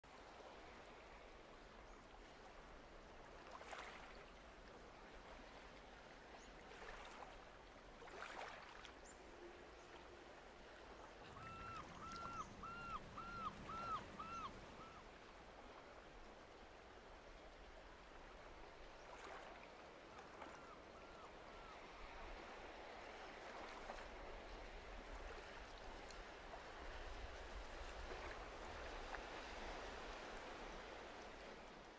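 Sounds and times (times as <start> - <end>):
soft water splashes: 0.0 - 31.9
water lapping: 2.2 - 31.7
bird calling short notes: 11.3 - 15.0.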